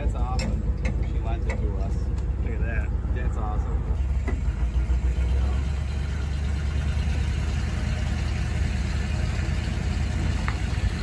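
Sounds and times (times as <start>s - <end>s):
pickup engine rumbling at low revs: 0.0s - 11.0s.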